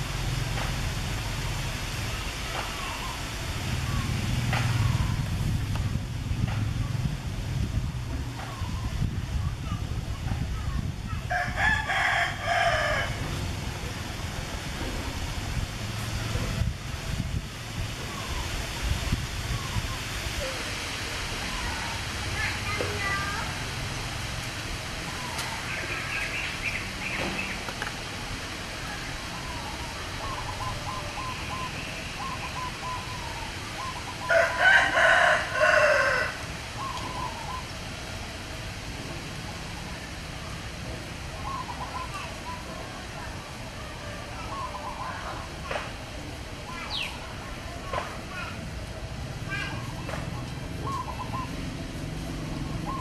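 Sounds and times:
rooster crowing: 11.3 - 13.2, 34.2 - 36.4.

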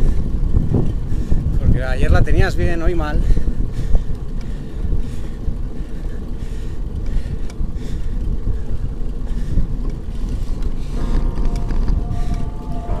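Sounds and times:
wind buffeting microphone: 0.0 - 13.0
faint steady tones: 9.8 - 13.0.

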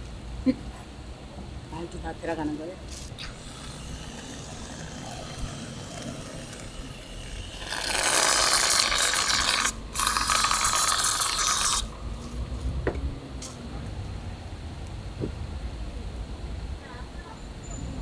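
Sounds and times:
aerosol cream can spraying: 2.9 - 11.9.

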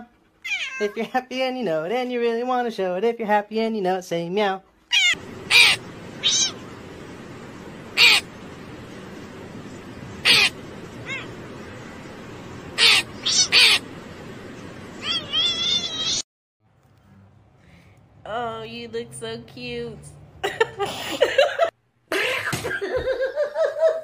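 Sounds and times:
cat calling: 0.4 - 1.0, 4.9 - 16.2
crow calling: 5.0 - 6.7, 7.8 - 8.6, 10.1 - 12.1, 12.7 - 14.1
steady hiss: 5.2 - 16.2.

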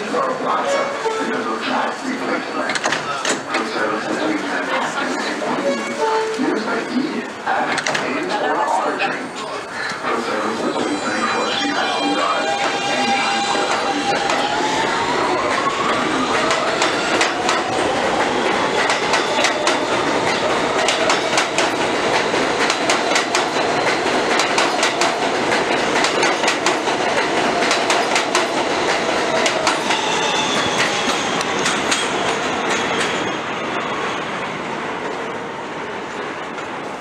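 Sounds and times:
train wheels clicking over rail joints: 15.3 - 33.2.

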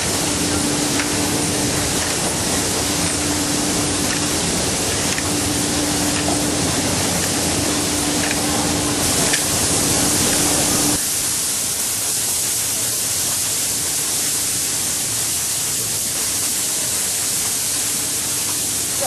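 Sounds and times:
low machine hum: 0.0 - 11.0
air spray guns hissing: 0.0 - 19.0.

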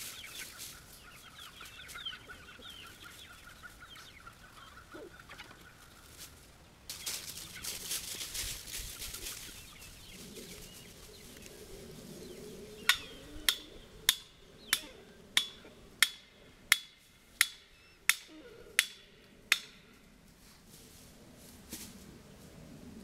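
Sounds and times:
chickens clucking: 0.0 - 20.2
fence post being hammered: 12.9 - 19.8.

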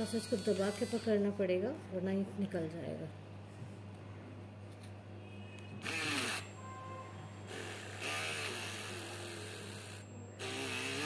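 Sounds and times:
small drill whining into wood: 0.2 - 1.2, 5.8 - 6.5, 7.5 - 11.0.

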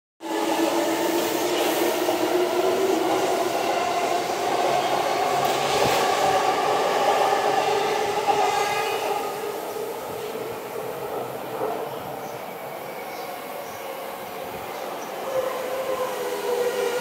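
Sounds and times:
train noise: 0.2 - 17.0.

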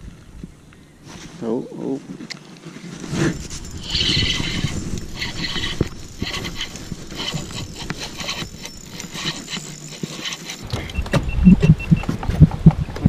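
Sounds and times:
rustling handling noise: 1.0 - 11.1
fishing reel clicking: 3.4 - 10.6
short high beeps: 10.8 - 12.1.

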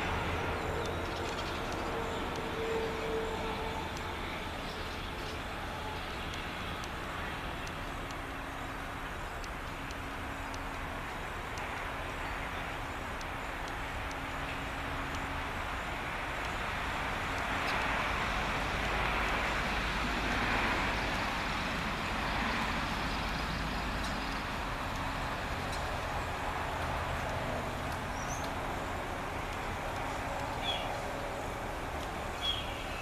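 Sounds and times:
highway traffic: 0.0 - 33.0.

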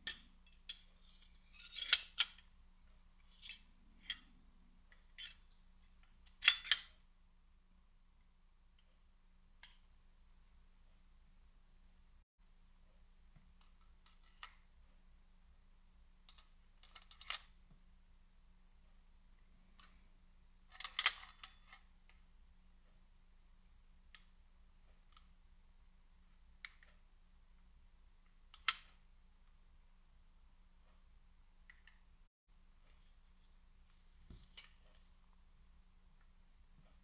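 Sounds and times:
metal parts clicking and scraping: 0.0 - 2.5, 3.2 - 4.3, 6.3 - 7.0, 16.3 - 17.6.

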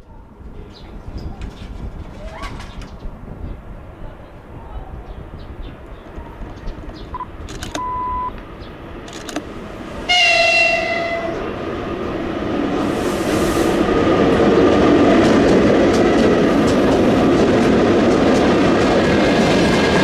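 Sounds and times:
freight train rumbling past: 0.1 - 20.0
short high beep: 7.8 - 8.3
locomotive horn blast: 10.0 - 11.7.

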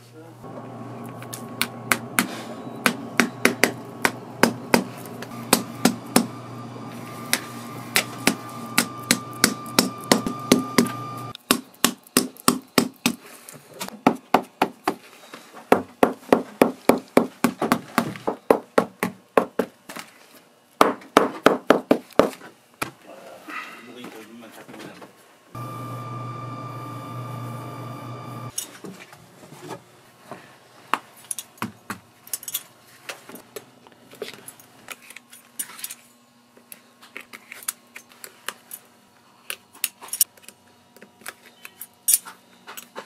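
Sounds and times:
steady low hum: 0.2 - 11.4, 25.6 - 28.5.

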